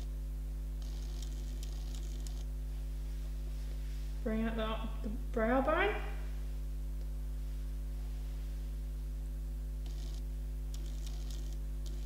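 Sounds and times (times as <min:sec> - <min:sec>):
electrical hum: 0:00.0 - 0:12.0
makeup brush scratching skin: 0:10.8 - 0:12.0.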